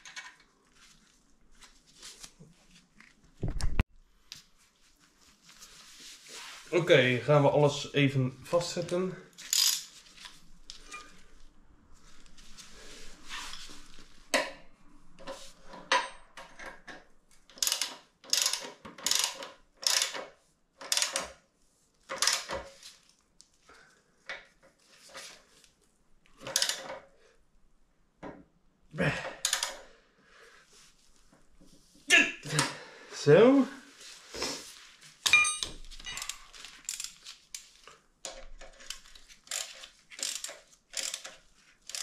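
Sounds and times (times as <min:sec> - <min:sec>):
hand tools clicking on metal: 0:39.5 - 0:42.0.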